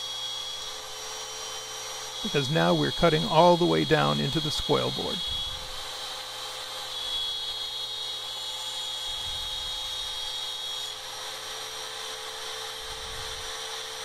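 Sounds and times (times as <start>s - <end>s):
router cutting wood: 0.0s - 14.0s.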